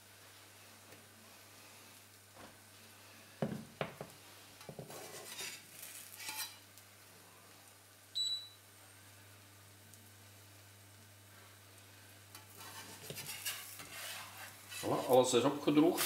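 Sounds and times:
spatula scraping pan: 4.6s - 6.6s, 12.3s - 16.0s
short beep: 8.2s - 8.6s.

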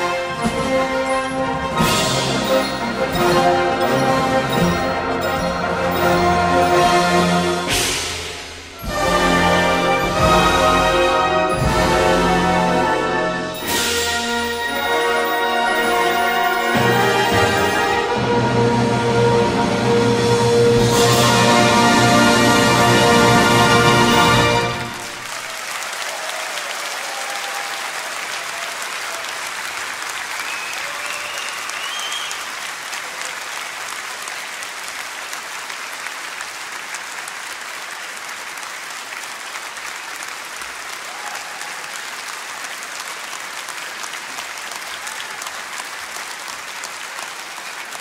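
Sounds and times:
audience applauding: 0.0s - 18.4s, 20.8s - 48.0s
audience cheering: 20.9s - 48.0s.

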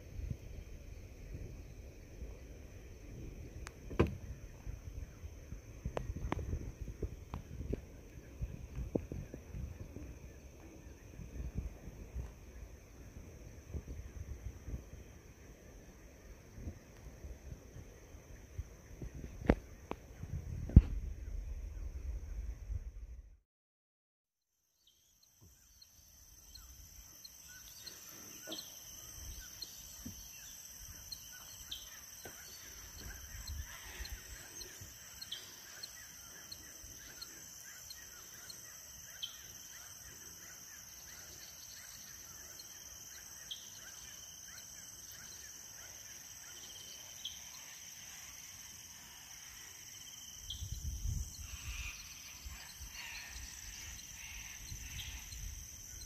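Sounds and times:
insects chorus: 0.0s - 23.0s, 24.8s - 56.0s
low rumble: 20.2s - 23.4s
birds chirping: 24.8s - 45.5s, 50.4s - 56.0s.

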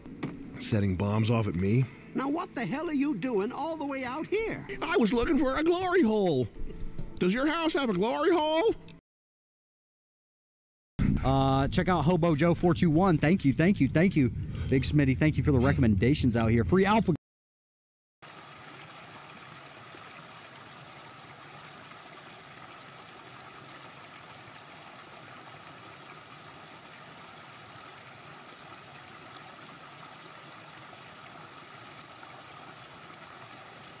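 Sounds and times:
stream trickling over stones: 18.2s - 34.0s.

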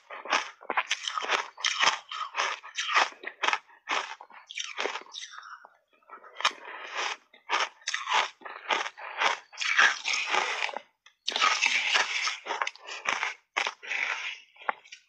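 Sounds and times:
crunching and chewing ice: 0.0s - 15.0s.

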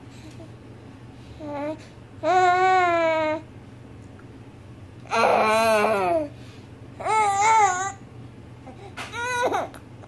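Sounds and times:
baby babbling: 7.0s - 8.0s, 8.7s - 9.8s.

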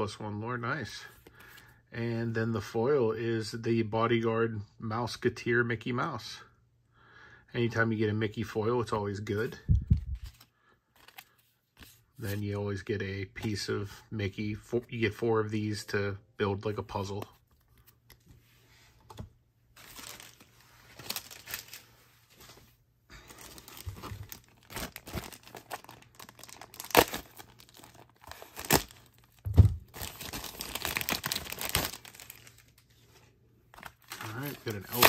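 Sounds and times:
plastic bag crinkling: 19.8s - 21.9s, 23.2s - 32.8s
plastic tearing: 23.3s - 32.8s, 33.8s - 35.0s.

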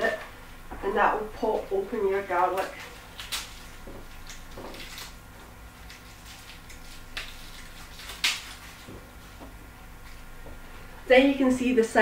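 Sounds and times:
garlic skin crackling: 1.4s - 10.3s.

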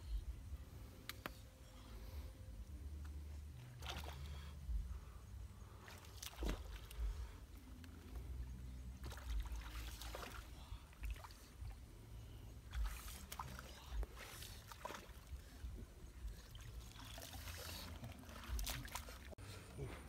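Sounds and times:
footsteps splashing in muddy water: 5.8s - 7.1s, 9.0s - 11.5s, 12.7s - 15.4s, 16.5s - 19.4s.

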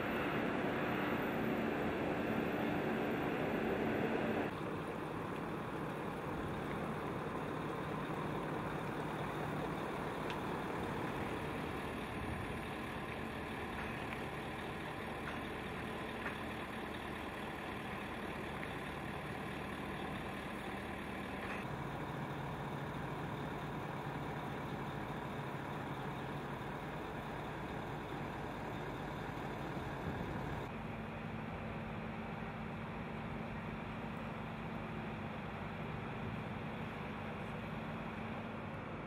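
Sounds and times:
diesel engine idling: 0.0s - 39.0s.

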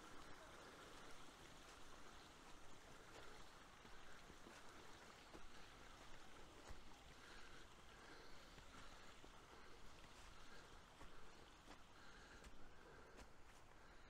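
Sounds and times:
footsteps on muddy path: 0.0s - 14.0s.

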